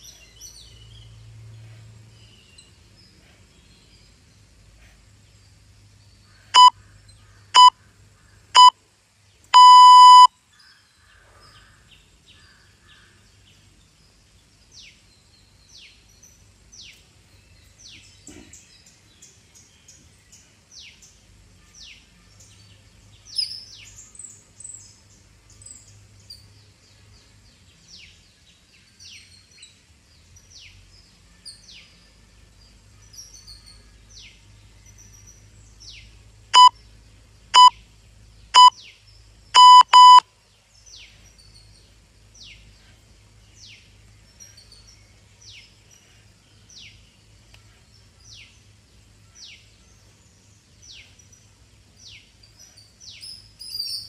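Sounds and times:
birds chirping: 0:00.0 - 0:32.0, 0:32.6 - 0:54.0
timer countdown beeps: 0:09.6 - 0:10.3, 0:39.6 - 0:40.2.

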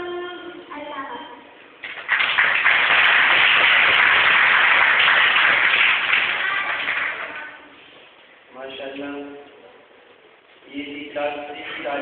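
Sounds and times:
audience applauding: 0:01.8 - 0:07.5.

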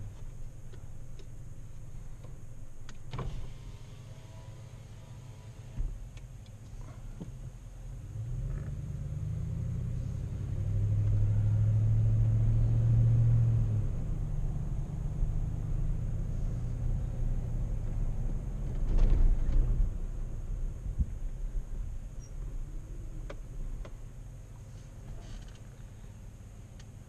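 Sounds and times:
car engine and road rumble: 0:00.0 - 0:27.0.

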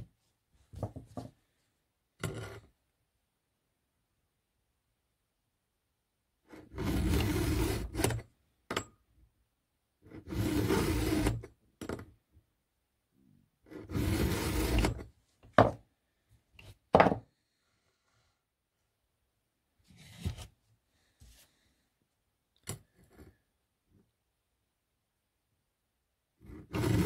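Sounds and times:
file rasping on chain cutter: 0:06.5 - 0:08.2, 0:10.2 - 0:11.4, 0:13.7 - 0:15.0, 0:26.4 - 0:27.0.

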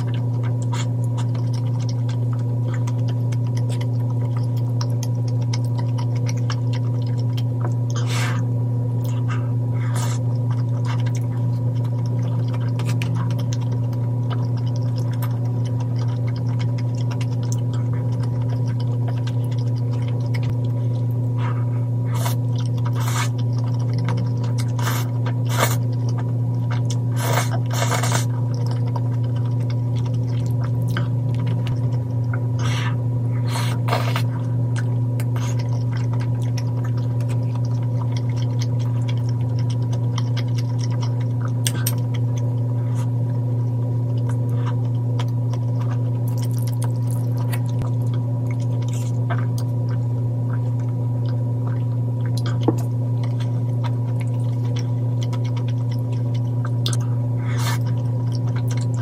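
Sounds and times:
low electrical hum: 0:00.0 - 0:59.0
slurping noodles: 0:07.9 - 0:20.5, 0:21.4 - 0:25.9, 0:27.1 - 0:28.4, 0:32.6 - 0:34.5, 0:56.9 - 0:58.0.

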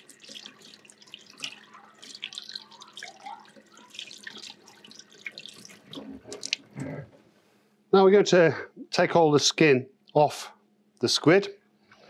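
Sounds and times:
tap water running into sink: 0:00.0 - 0:07.0
water splashing: 0:00.0 - 0:07.1.

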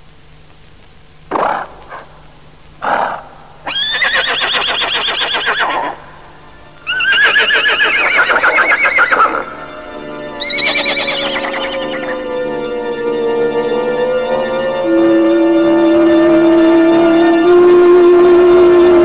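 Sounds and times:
horse whinnying: 0:02.9 - 0:06.0, 0:06.9 - 0:09.5, 0:10.4 - 0:12.1
music with falling tone: 0:06.9 - 0:19.0
horse blowing: 0:10.4 - 0:12.1.

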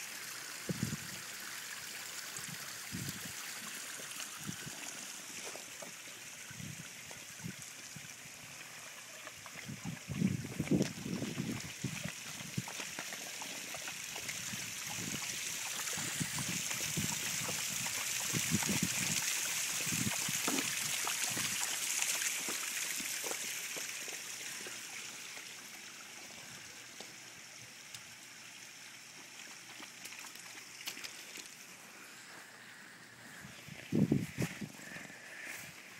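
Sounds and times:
water splashing down rocks: 0:00.0 - 0:27.2, 0:29.2 - 0:31.8.

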